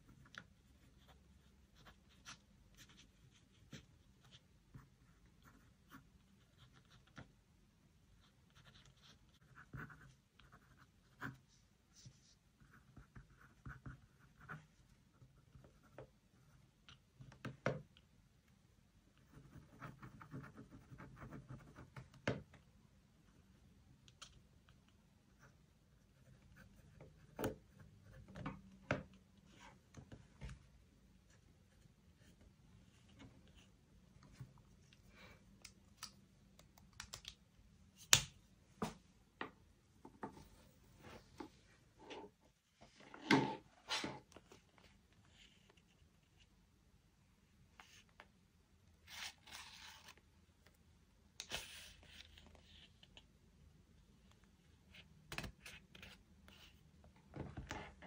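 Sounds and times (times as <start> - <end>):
pen scratching on paper: 8.2 - 14.8, 19.2 - 21.8.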